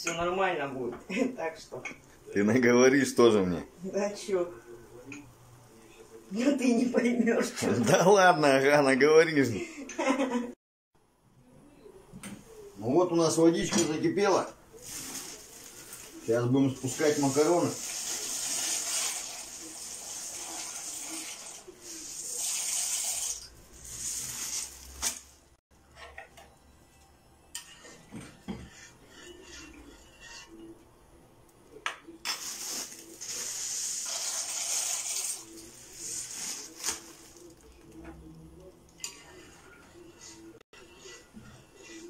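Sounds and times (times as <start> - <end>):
dry pasta pouring: 14.8 - 25.2, 32.4 - 37.7.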